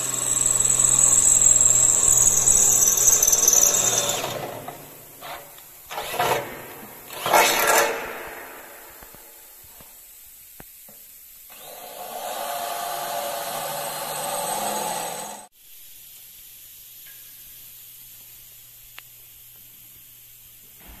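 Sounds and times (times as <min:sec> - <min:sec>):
cordless drill boring through metal: 0:00.0 - 0:06.4, 0:11.5 - 0:15.5.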